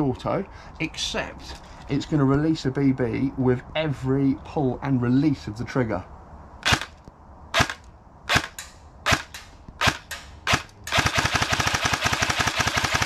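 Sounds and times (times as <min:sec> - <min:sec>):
airsoft gun firing: 0:06.6 - 0:07.0, 0:07.6 - 0:13.0.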